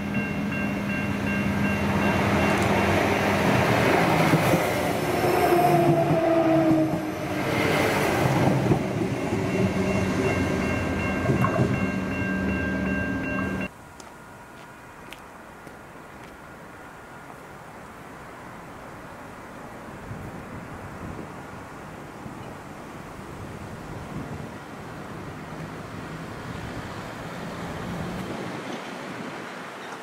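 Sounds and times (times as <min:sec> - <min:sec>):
level crossing warning bells: 0:00.0 - 0:03.9, 0:08.9 - 0:14.6
diesel railcar passing: 0:00.0 - 0:30.0.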